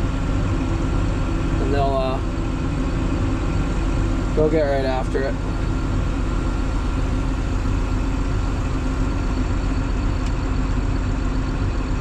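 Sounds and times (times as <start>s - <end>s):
tractor engine drone: 0.0s - 12.0s.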